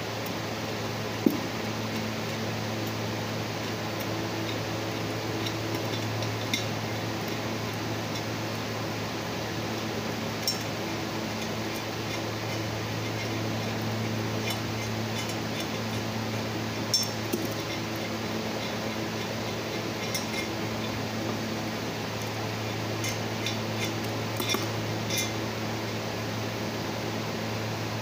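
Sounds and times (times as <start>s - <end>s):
fan hum: 0.0s - 28.0s
screwdriver clinking on metal: 5.4s - 6.7s, 10.4s - 10.8s, 11.4s - 16.1s, 16.8s - 21.0s, 22.7s - 25.4s.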